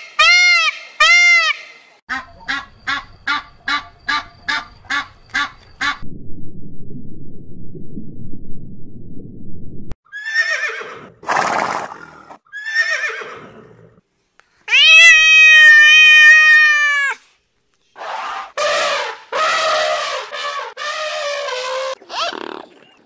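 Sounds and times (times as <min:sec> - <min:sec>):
underwater rumble: 0:04.7 - 0:10.0
cat meowing: 0:14.7 - 0:17.2.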